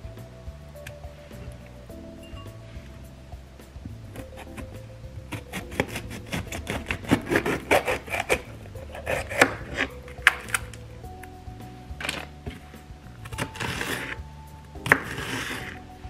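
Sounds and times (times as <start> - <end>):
background music: 0.0 - 16.0
knife chopping on cutting board: 5.3 - 10.7, 14.9 - 15.7.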